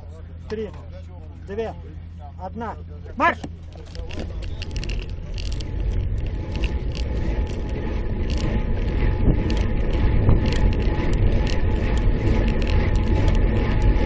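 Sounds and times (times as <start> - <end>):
bicycle clicks and rattles: 3.4 - 14.0
wind rumble on microphone: 3.4 - 14.0.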